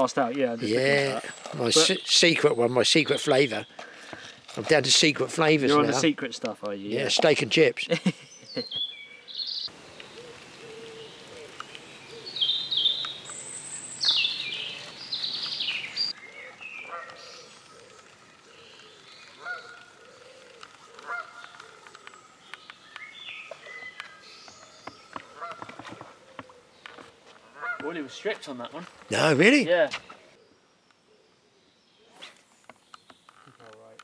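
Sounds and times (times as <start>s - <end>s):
geese honking: 20.9s - 21.7s, 25.3s - 25.8s, 27.4s - 28.2s.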